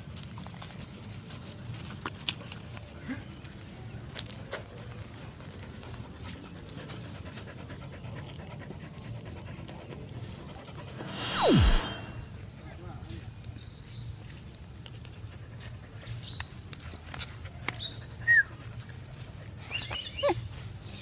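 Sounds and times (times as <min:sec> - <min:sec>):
dog panting: 0:05.4 - 0:11.1.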